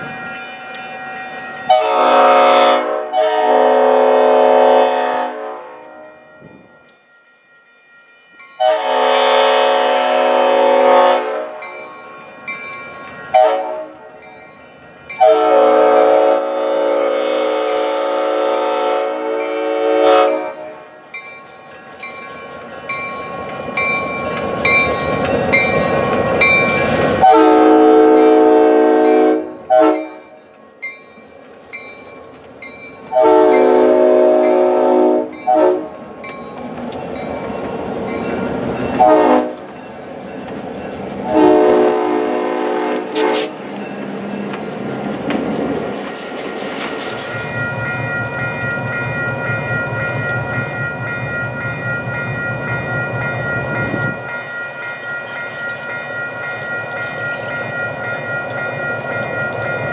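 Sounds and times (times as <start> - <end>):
locomotive air horn blasts: 1.7 - 6.2, 8.6 - 11.7, 13.3 - 14.1, 15.2 - 20.9, 27.2 - 30.2, 33.1 - 36.0, 39.0 - 39.6, 41.2 - 43.6
bell ringing: 47.4 - 59.9.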